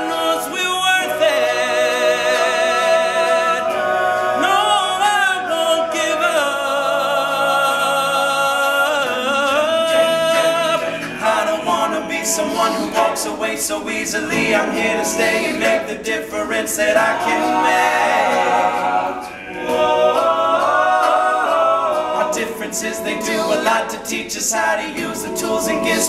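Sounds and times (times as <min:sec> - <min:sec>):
male a cappella group singing: 0:00.0 - 0:26.0.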